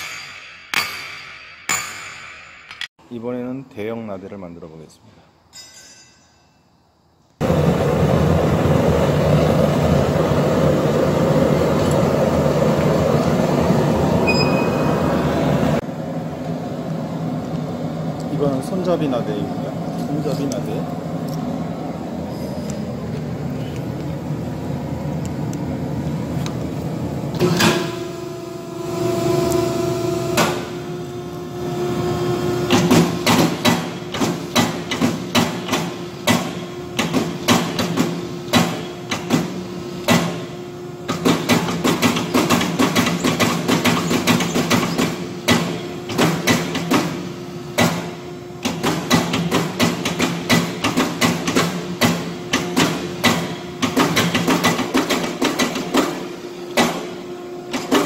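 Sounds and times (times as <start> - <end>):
power hammer pounding steel: 0.0 - 2.8, 32.7 - 39.5, 41.1 - 47.2, 47.8 - 58.0
machine hum: 7.4 - 58.0.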